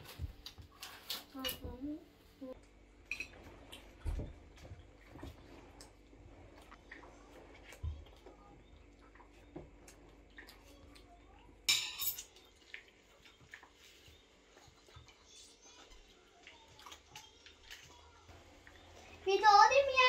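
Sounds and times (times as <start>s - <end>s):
tableware clatter: 3.0s - 3.5s, 11.7s - 12.4s
forks clinking on plates: 11.7s - 12.5s.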